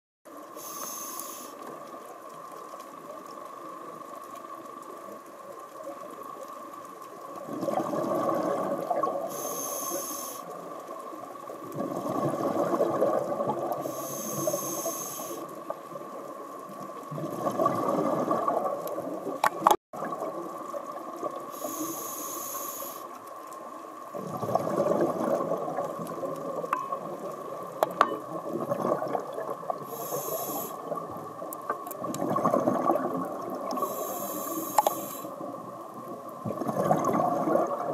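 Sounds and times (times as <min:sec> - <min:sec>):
faint steady whine: 0:00.3 - 0:07.3, 0:09.2 - 0:11.6, 0:13.6 - 0:16.6, 0:21.3 - 0:24.2, 0:29.8 - 0:31.7, 0:33.6 - 0:36.4
regulator hiss: 0:00.4 - 0:01.9, 0:09.3 - 0:10.7, 0:13.8 - 0:15.5, 0:21.5 - 0:23.2, 0:29.8 - 0:31.0, 0:33.8 - 0:35.5
exhaled bubbles underwater: 0:03.1 - 0:22.2, 0:24.0 - 0:37.9.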